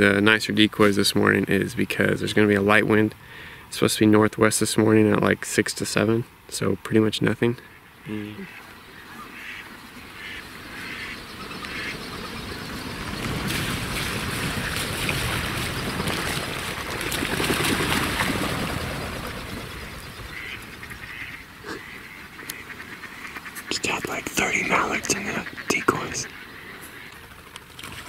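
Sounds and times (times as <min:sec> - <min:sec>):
ducks quacking: 0:08.4 - 0:12.7, 0:19.8 - 0:27.2
rush of duck wings: 0:12.9 - 0:22.0.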